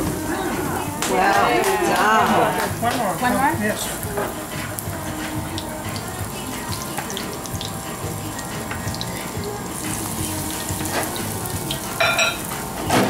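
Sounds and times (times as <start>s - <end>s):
dough frying in hot oil: 2.7s - 13.0s.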